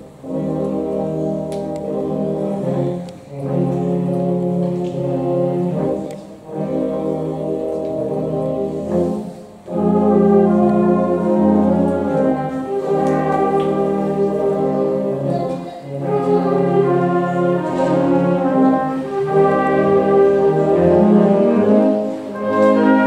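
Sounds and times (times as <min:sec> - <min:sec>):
concert band brass chords: 0:00.0 - 0:23.0.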